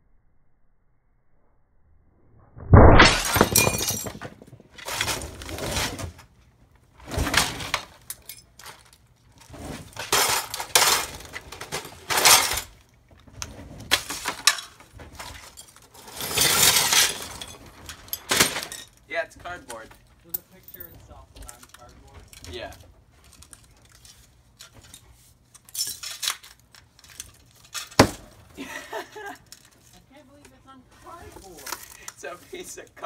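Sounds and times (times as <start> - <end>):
glass shattering: 2.8 - 5.8, 9.8 - 12.8, 13.9 - 19.0, 25.7 - 28.5
dumbbell smashing onto glass: 2.8 - 6.0, 14.0 - 19.0, 27.7 - 28.5
broken glass clinking and scraping: 3.0 - 6.1, 7.1 - 12.9, 13.9 - 19.1, 19.7 - 28.2.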